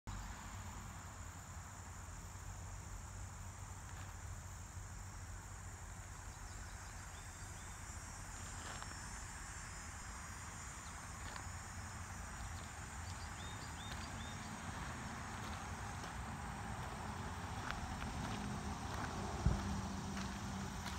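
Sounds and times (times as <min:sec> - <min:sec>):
insects chorus: 0:00.1 - 0:20.9.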